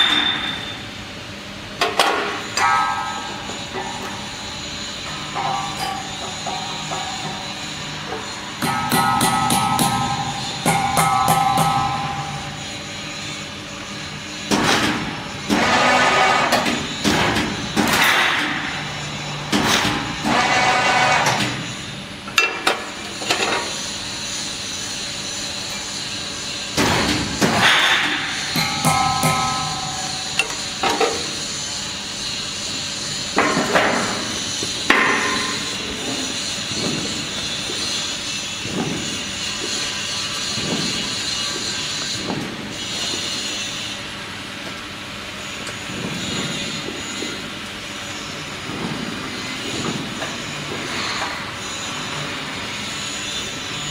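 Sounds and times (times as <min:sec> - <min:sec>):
sharp metallic knocks: 0:02.0 - 0:04.1, 0:08.5 - 0:12.7, 0:26.8 - 0:31.4.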